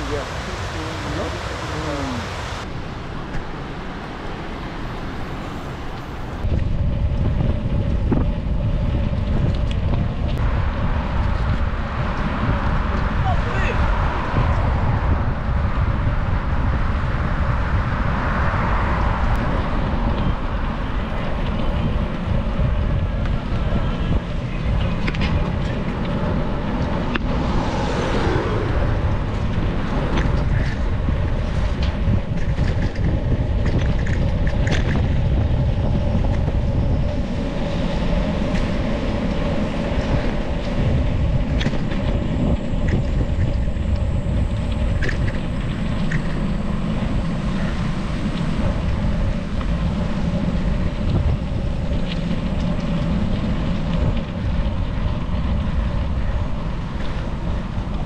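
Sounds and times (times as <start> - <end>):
tyre and road noise: 0.0 - 58.0
wind buffeting microphone: 0.0 - 58.0
bike clicks and rattles: 6.4 - 10.4, 21.1 - 27.5, 29.4 - 58.0.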